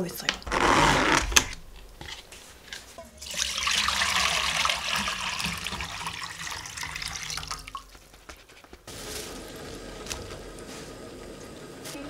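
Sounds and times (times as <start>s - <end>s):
liquid pouring into metal pot: 3.0s - 7.9s.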